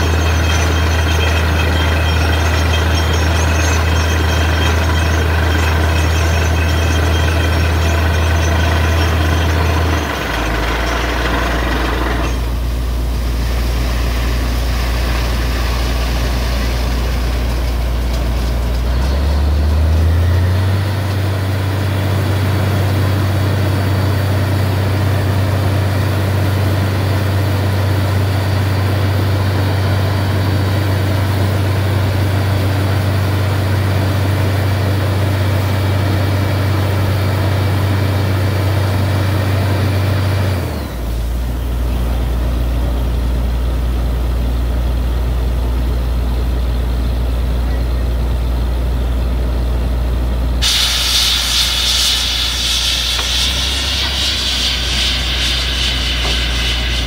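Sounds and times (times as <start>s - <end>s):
drilling rig engine humming: 0.0s - 43.0s, 46.2s - 57.0s
hiss: 50.6s - 57.0s.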